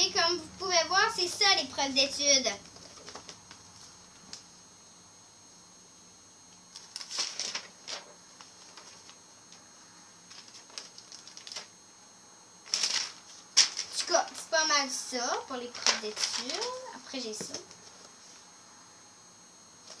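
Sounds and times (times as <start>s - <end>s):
paper pages rustling: 2.7s - 4.4s, 6.7s - 9.2s, 10.3s - 11.7s, 12.6s - 14.4s, 15.6s - 18.4s.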